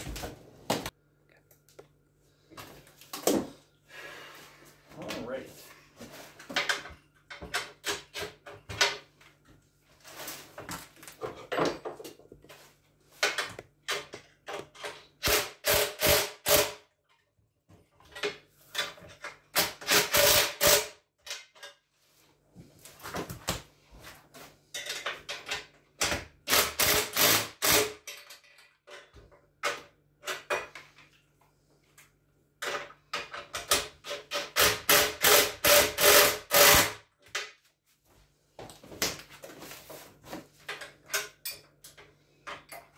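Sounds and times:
knocks and clicks of parts: 0:06.4 - 0:09.5, 0:13.2 - 0:16.3, 0:24.8 - 0:31.2, 0:32.0 - 0:37.6
cordless drill bursts: 0:26.5 - 0:28.0, 0:34.6 - 0:37.0.

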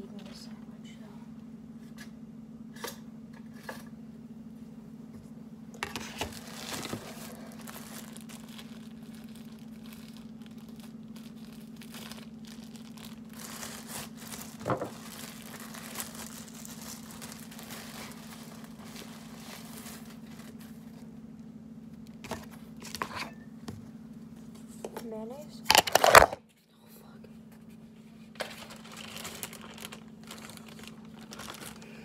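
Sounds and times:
steady low hum: 0:00.0 - 0:32.0
plastic bag crinkling: 0:05.8 - 0:21.0, 0:25.7 - 0:26.4, 0:28.3 - 0:32.0.

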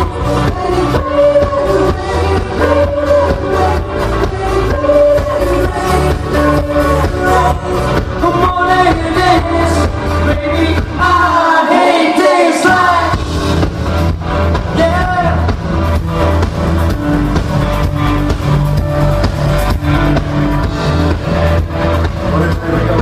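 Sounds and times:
man singing into a microphone: 0:00.0 - 0:13.2, 0:14.7 - 0:15.5, 0:22.2 - 0:23.0.

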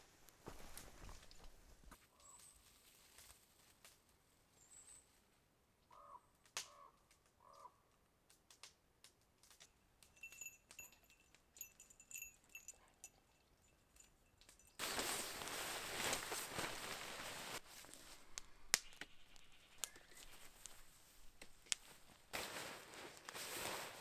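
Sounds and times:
low bird calls: 0:05.9 - 0:07.8, 0:18.2 - 0:21.1
high bird chirps: 0:18.8 - 0:20.6.

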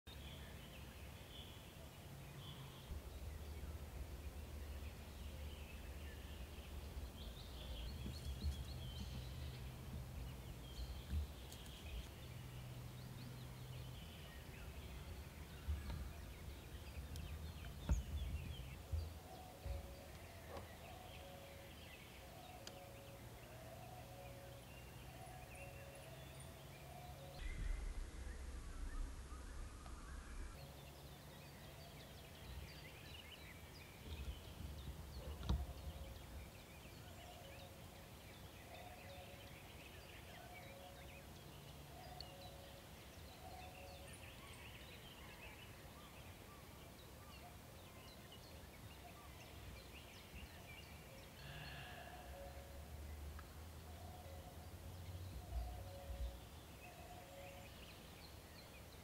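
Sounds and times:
faint bird calls: 0:01.2 - 0:58.8
brief low rumbles: 0:27.4 - 0:30.6.

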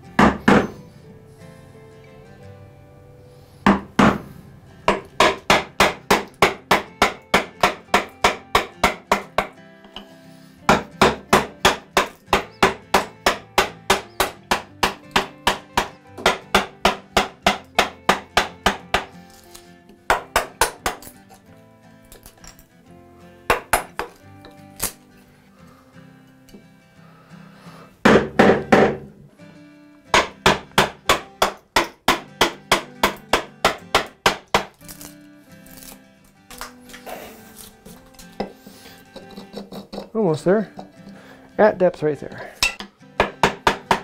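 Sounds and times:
soft background music: 0:00.0 - 0:44.0
wooden mallet striking chisel: 0:00.2 - 0:00.8, 0:03.7 - 0:04.3, 0:04.9 - 0:10.1, 0:10.7 - 0:19.2, 0:20.1 - 0:21.4, 0:23.5 - 0:25.0, 0:28.0 - 0:29.2, 0:30.1 - 0:34.8, 0:42.6 - 0:44.0.

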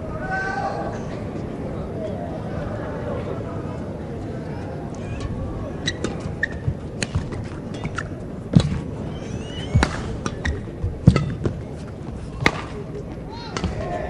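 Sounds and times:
hall background noise: 0:00.0 - 0:14.0
shoe squeaks: 0:05.0 - 0:08.2, 0:09.0 - 0:11.3
racket hitting shuttlecock: 0:05.9 - 0:08.9, 0:09.6 - 0:11.6, 0:12.4 - 0:14.0.

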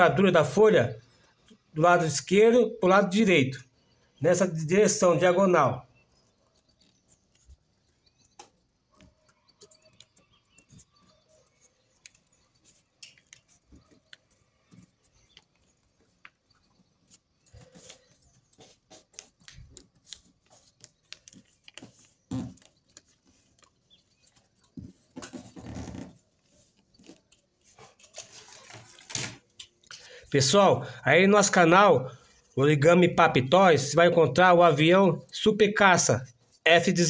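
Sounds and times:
paper folding and crinkling: 0:09.9 - 0:29.9.

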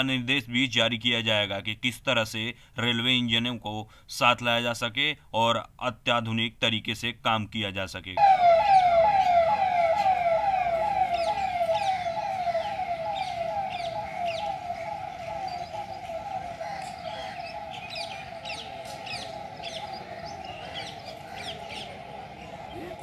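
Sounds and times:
birds chirping: 0:08.2 - 0:23.0
vehicle siren: 0:08.2 - 0:23.0.

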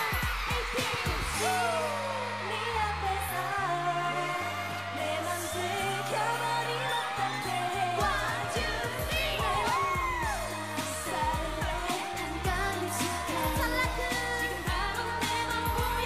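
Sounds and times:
backing track with steady beat: 0:00.0 - 0:02.1, 0:04.7 - 0:16.0
women singing dance-pop song: 0:00.0 - 0:16.0.

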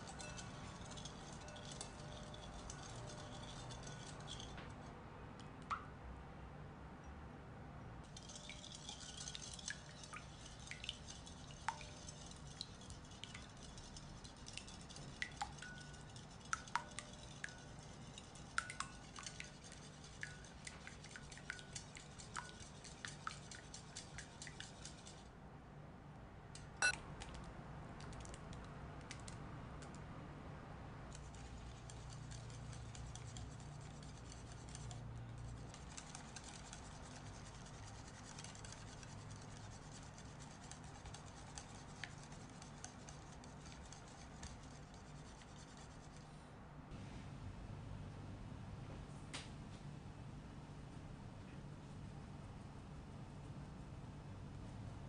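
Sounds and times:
whisk beating in glass bowl: 0:00.0 - 0:04.6, 0:08.1 - 0:25.2, 0:31.2 - 0:46.2.

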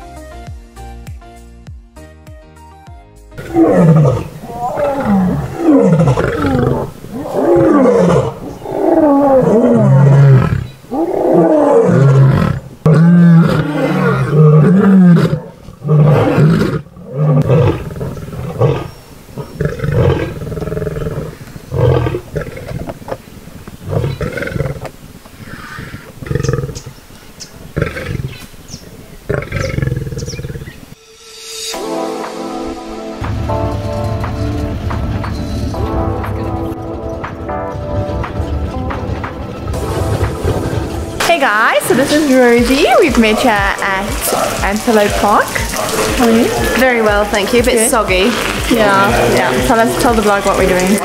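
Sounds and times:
lioness grunting: 0:03.4 - 0:23.2
lioness roaring: 0:03.4 - 0:23.2, 0:23.8 - 0:27.0, 0:27.7 - 0:28.4, 0:29.2 - 0:30.8.

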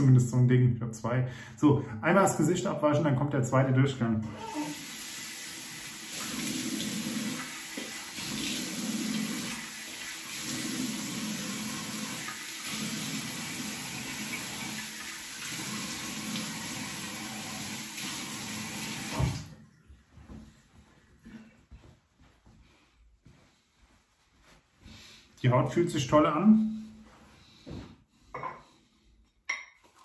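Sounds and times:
tap running into sink: 0:18.8 - 0:19.5.

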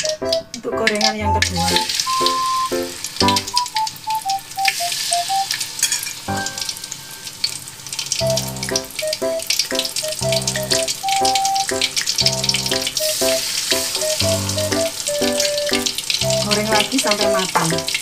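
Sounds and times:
simple melody music: 0:00.0 - 0:05.6, 0:06.3 - 0:06.7, 0:08.2 - 0:18.0
fish deep-frying in oil: 0:00.0 - 0:18.0
bass line: 0:01.2 - 0:01.8, 0:08.2 - 0:08.8, 0:10.2 - 0:10.9, 0:12.2 - 0:12.8, 0:14.2 - 0:16.8.

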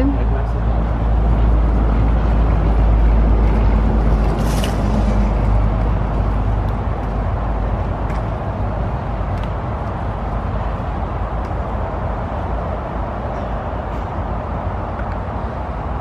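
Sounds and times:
suitcase wheels rolling on concrete: 0:00.0 - 0:12.0.

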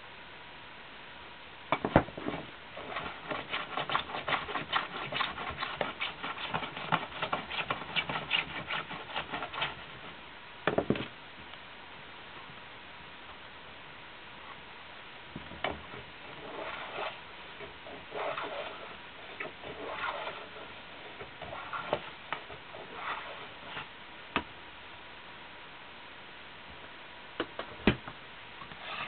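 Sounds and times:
hand tool scraping: 0:02.3 - 0:09.9, 0:16.2 - 0:23.9, 0:28.7 - 0:29.0.

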